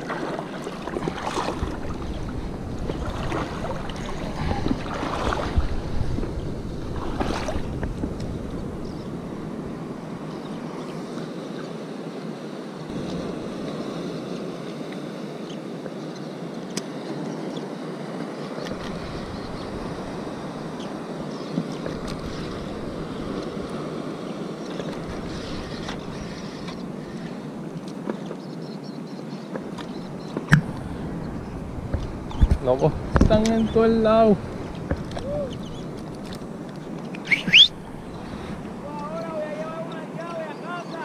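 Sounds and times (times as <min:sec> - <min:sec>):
wind buffeting microphone: 0:00.0 - 0:10.8, 0:29.9 - 0:40.1
sea water lapping: 0:00.0 - 0:15.9, 0:16.5 - 0:28.5, 0:29.1 - 0:41.0.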